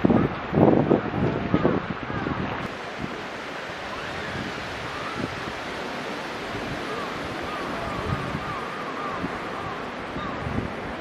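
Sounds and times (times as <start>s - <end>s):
wind rushing: 0.0s - 11.0s
small bird calling: 6.8s - 10.5s.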